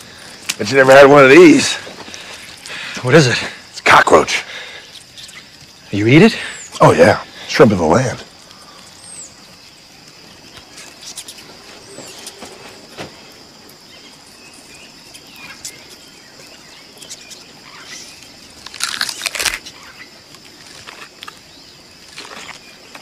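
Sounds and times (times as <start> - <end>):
insect shell crackling and crunching: 0.0 - 23.0
bird chirps: 4.5 - 7.4, 8.4 - 13.3, 13.9 - 18.6.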